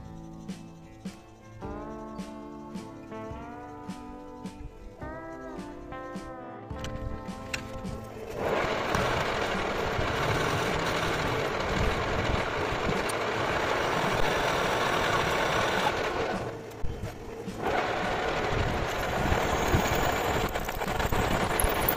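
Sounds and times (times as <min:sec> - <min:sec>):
metal lathe cutting steel: 0:08.3 - 0:21.9.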